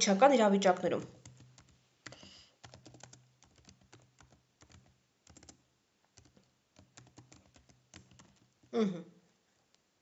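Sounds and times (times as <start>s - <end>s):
typing on computer keyboard: 1.1s - 5.6s, 6.2s - 8.7s.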